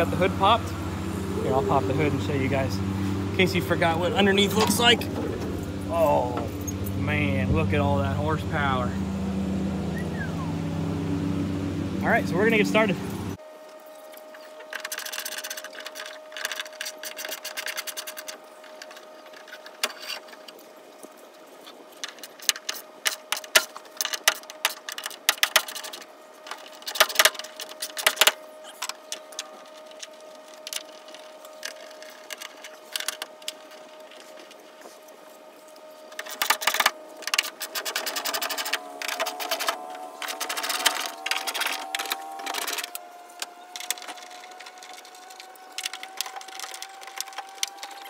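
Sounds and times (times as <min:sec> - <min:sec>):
mechanical clicking and clattering: 0:36.1 - 0:48.0.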